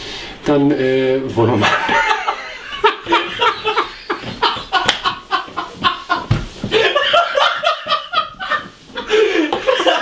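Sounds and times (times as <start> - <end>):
man laughing: 1.6 - 10.0.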